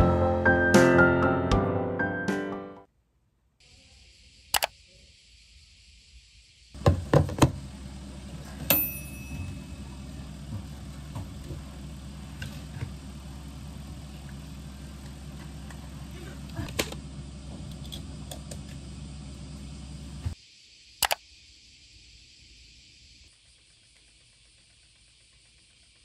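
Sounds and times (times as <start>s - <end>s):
low background hum: 3.2s - 20.4s
sharp double click: 4.5s - 4.8s, 21.0s - 21.2s
ringing clink: 8.7s - 9.9s.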